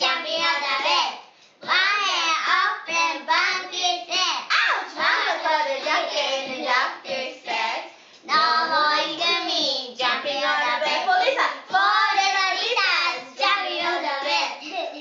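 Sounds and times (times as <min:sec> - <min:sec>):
children singing: 0:04.8 - 0:15.0.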